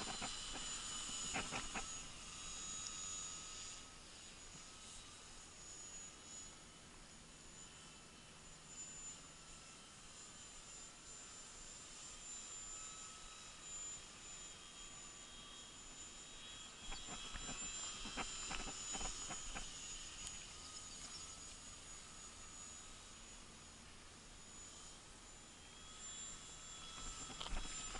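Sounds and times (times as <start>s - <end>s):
sharp clicks and rustles: 0.0s - 1.9s, 16.9s - 21.2s, 27.0s - 27.9s
model plane motor whine: 0.0s - 27.9s.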